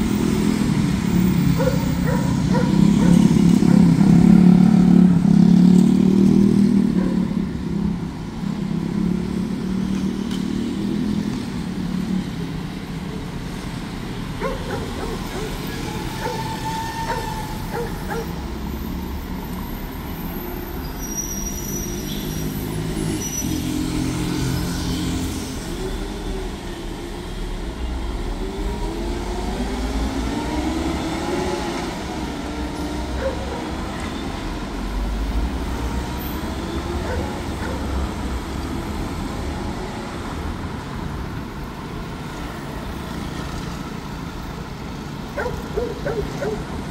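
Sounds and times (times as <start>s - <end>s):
heavy truck passing: 0.0s - 7.4s
motorcycles passing: 0.0s - 19.5s, 22.0s - 46.9s
cars passing: 0.0s - 46.9s.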